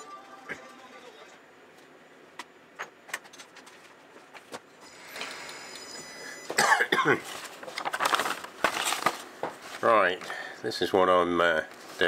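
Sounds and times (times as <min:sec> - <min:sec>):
person coughing and clearing throat: 0:06.5 - 0:07.3.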